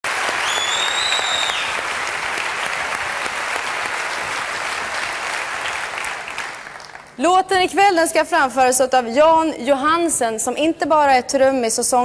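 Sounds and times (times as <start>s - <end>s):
large audience applauding: 0.0s - 7.2s
high steady whistle: 0.4s - 1.8s.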